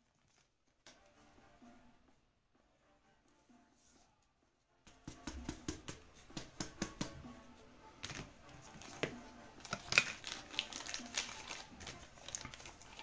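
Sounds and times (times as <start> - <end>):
plastic clicks and rustles: 8.0 - 13.0.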